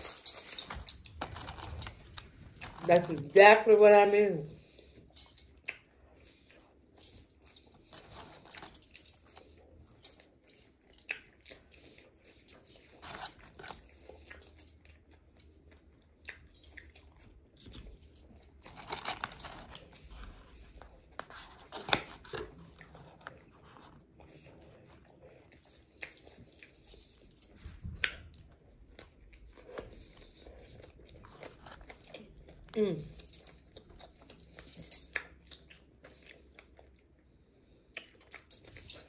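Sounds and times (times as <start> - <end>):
chewing and mouth clicks: 0.0 - 3.4, 4.5 - 39.0.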